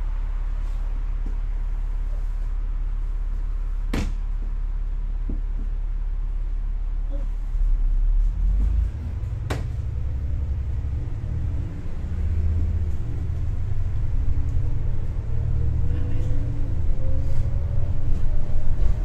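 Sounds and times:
bus engine rumble: 0:00.0 - 0:19.0.

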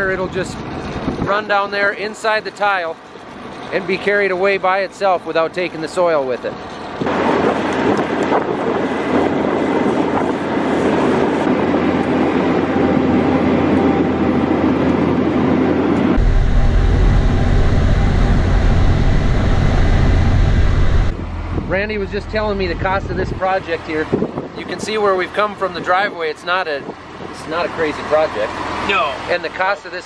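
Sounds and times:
heavy machine running: 0:14.2 - 0:24.6.

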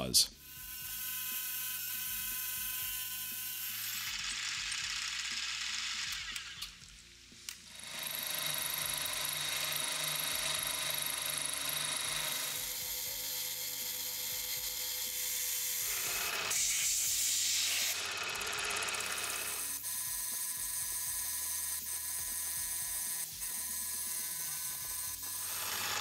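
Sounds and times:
milling machine cutting steel: 0:07.7 - 0:19.7, 0:23.8 - 0:26.0.

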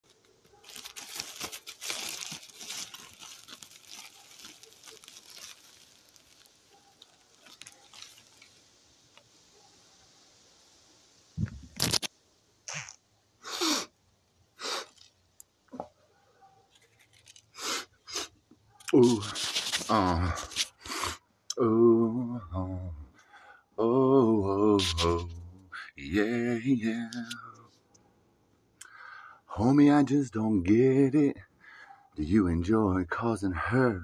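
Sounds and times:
plastic bag crinkling: 0:00.1 - 0:09.2, 0:11.4 - 0:12.1, 0:14.7 - 0:15.2, 0:16.7 - 0:17.6, 0:18.8 - 0:20.8, 0:24.8 - 0:25.2.

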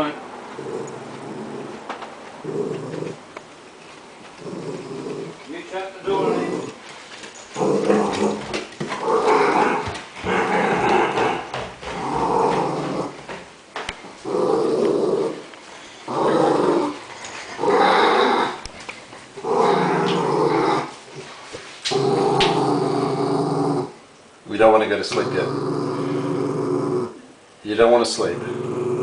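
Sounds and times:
small dog growling: 0:00.5 - 0:03.3, 0:04.4 - 0:05.5, 0:06.1 - 0:06.9, 0:07.5 - 0:13.3, 0:14.2 - 0:18.7, 0:19.4 - 0:21.3, 0:21.9 - 0:24.0, 0:25.1 - 0:27.4, 0:28.2 - 0:29.0.

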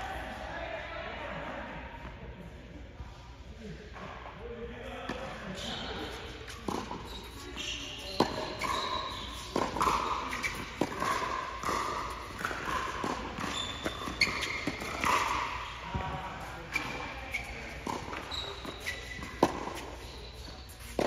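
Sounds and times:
shoes squeaking on court: 0:05.5 - 0:21.0
tennis ball bouncing: 0:06.5 - 0:07.4, 0:08.1 - 0:21.0
racket hitting ball: 0:06.6 - 0:07.1, 0:08.2 - 0:17.0, 0:17.7 - 0:20.1.

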